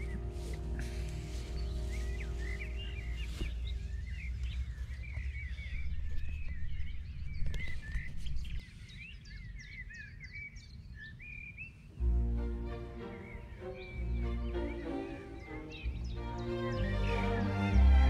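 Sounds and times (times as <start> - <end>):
wind rumble on microphone: 0.0 - 12.1
songbirds warbling: 0.0 - 18.0.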